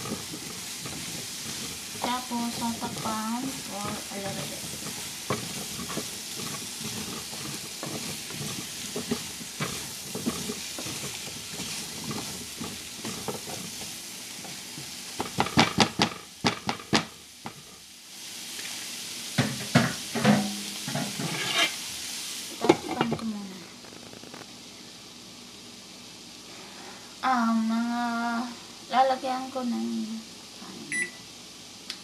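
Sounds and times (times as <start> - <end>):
spatula clacking against pan: 0.0 - 14.6
squash sizzling in a frying pan: 0.0 - 32.0.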